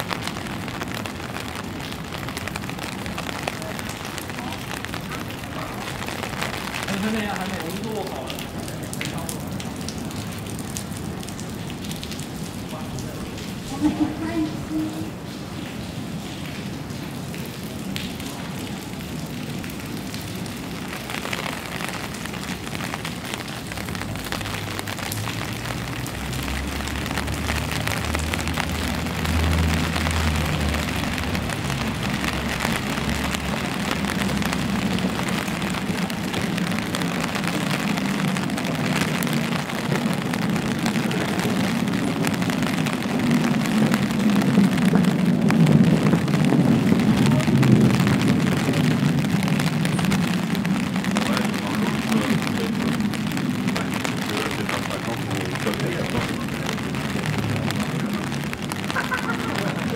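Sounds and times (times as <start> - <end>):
rain on an umbrella and paving: 0.0 - 59.9.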